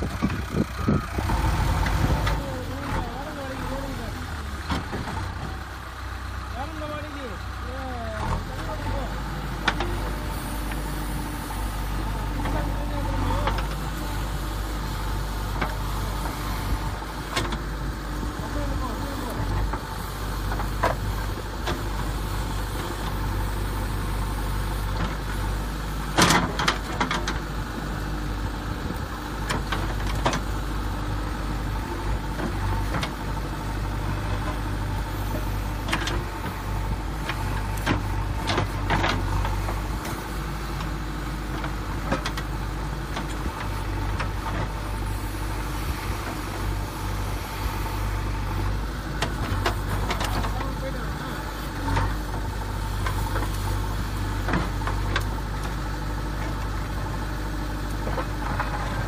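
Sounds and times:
low engine-like drone: 0.0s - 59.0s.

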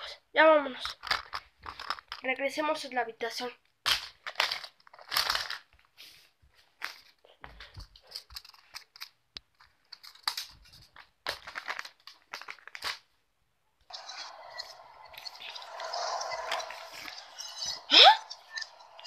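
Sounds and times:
plastic toys rustling in hands: 0.6s - 2.6s, 3.9s - 13.2s.

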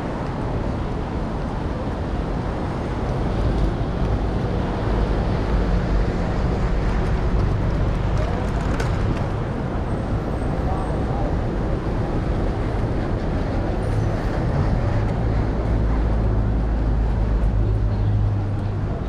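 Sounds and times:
traffic: 0.0s - 19.0s
wind rumbling on microphone: 0.0s - 19.0s.

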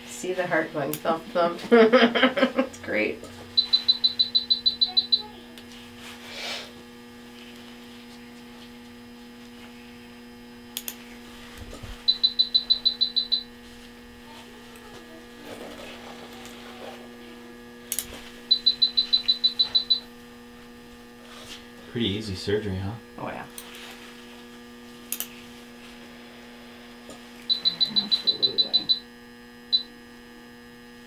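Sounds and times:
steady electrical hum: 0.0s - 31.0s
rapid high-pitched alarm beeps: 3.5s - 5.4s, 12.0s - 13.6s, 18.5s - 20.1s, 27.5s - 29.1s.

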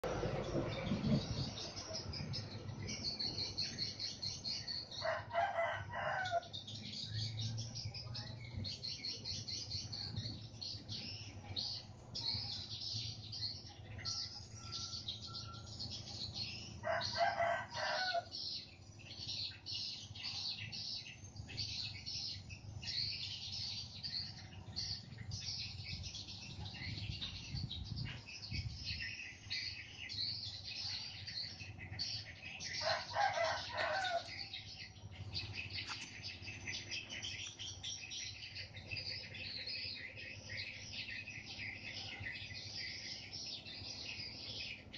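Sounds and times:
small birds chirping: 0.0s - 44.9s
rooster crowing: 5.0s - 6.5s, 16.8s - 18.3s, 32.8s - 34.4s.

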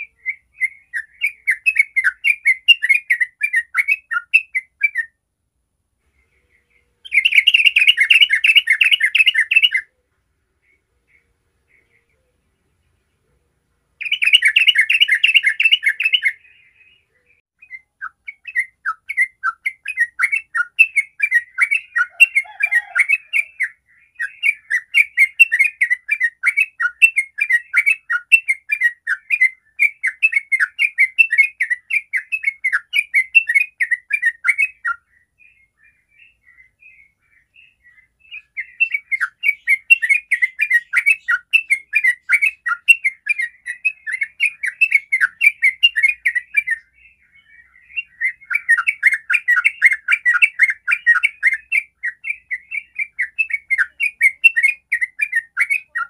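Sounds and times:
bulbul singing chattering notes: 7.1s - 9.8s, 14.0s - 16.5s.

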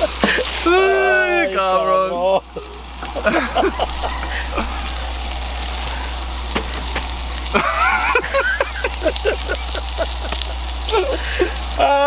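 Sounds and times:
man laughing: 0.0s - 1.0s, 2.2s - 6.1s, 7.4s - 12.0s
burgers sizzling in a skillet: 0.0s - 12.0s.

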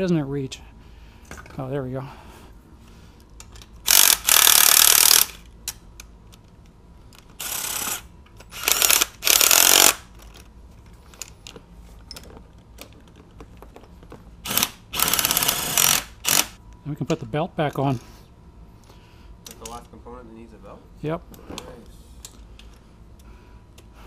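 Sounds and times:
impact driver bursts: 3.8s - 5.4s, 7.4s - 10.1s, 14.4s - 16.6s
light clicks of tool handling: 19.4s - 19.9s.

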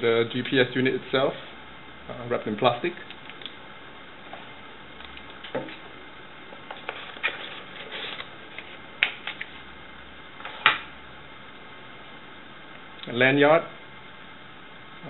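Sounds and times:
cardboard rustling and scraping: 6.6s - 9.5s.

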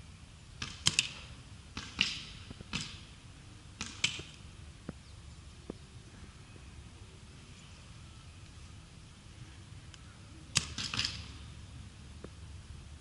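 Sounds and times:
paintball markers firing: 0.6s - 1.2s, 1.8s - 3.0s, 3.8s - 4.4s, 10.5s - 11.3s.

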